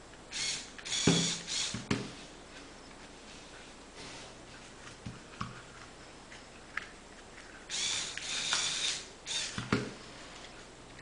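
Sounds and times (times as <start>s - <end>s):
toy crane mechanical noise: 7.7s - 9.6s.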